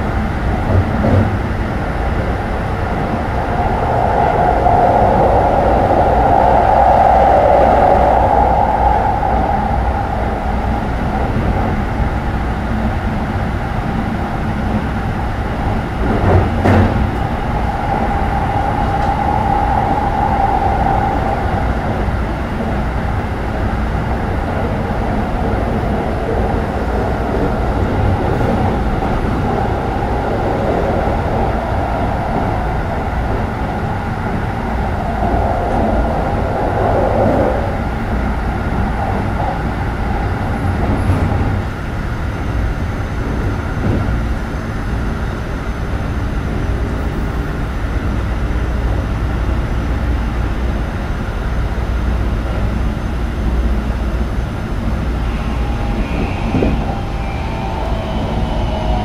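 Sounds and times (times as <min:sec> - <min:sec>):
train wheels rumbling on track: 0:00.0 - 0:59.0
traction motor whine: 0:54.7 - 0:59.0.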